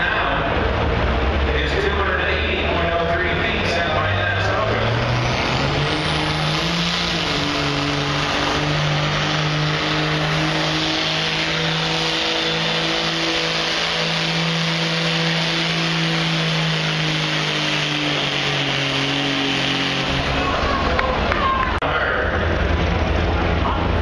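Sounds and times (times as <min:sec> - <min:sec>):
diesel truck engine at full throttle: 0:00.0 - 0:24.0.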